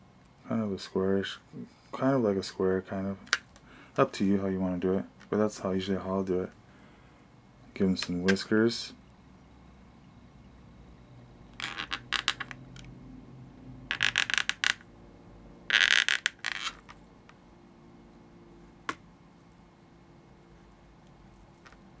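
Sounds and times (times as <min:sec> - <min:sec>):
marker squeaking on balloon: 0:11.6 - 0:12.5, 0:13.9 - 0:14.8, 0:15.7 - 0:17.0.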